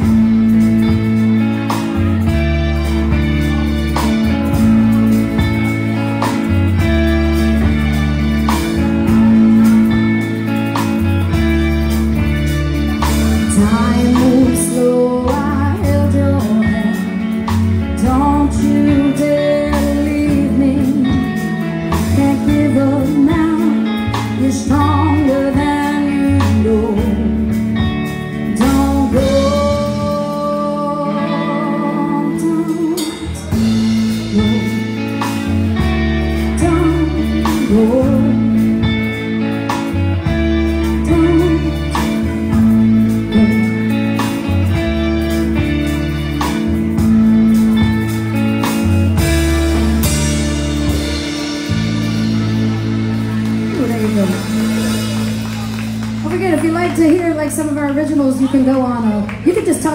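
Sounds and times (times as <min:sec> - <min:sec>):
live band playing: 0:00.0 - 0:59.9
woman singing: 0:13.0 - 0:39.2, 0:40.6 - 0:44.4, 0:56.2 - 0:59.9.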